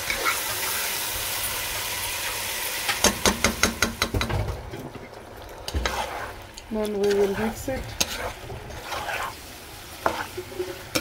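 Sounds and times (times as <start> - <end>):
stir-fry sizzling in a pan: 0.0 - 11.0
spatula knocking against pan: 3.0 - 4.4.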